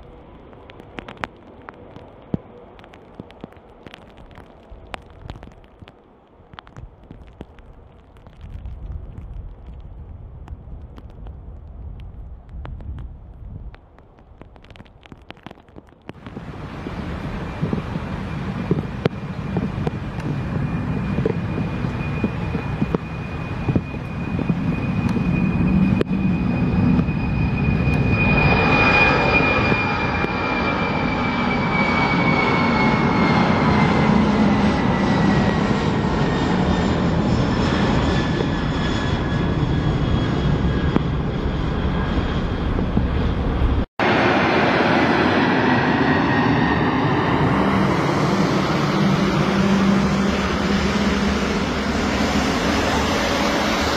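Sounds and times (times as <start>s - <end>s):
jet engine rumble: 0.0s - 53.9s
high jet whine: 16.1s - 53.9s.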